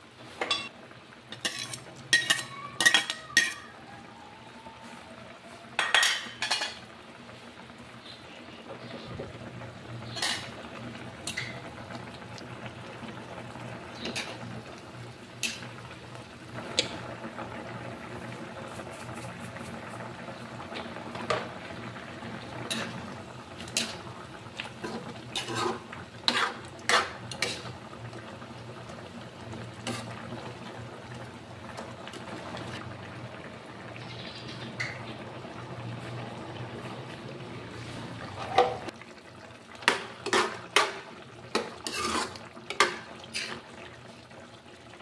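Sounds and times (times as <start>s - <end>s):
stew boiling in a wok: 0.0s - 45.0s
metal ladle scraping a pan: 1.3s - 3.8s, 10.0s - 10.5s, 14.0s - 14.4s, 22.7s - 23.0s, 24.8s - 27.8s, 29.8s - 30.2s, 39.9s - 43.8s.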